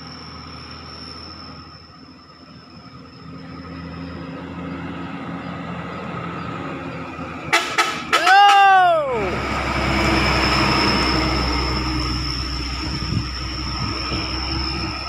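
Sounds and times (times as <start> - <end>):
diesel truck engine: 0.0 - 15.0
truck horn: 7.4 - 8.8.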